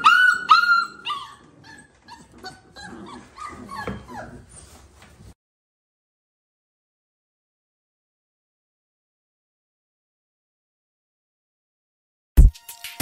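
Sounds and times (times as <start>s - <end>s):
puppies whining and yipping: 0.0s - 5.2s.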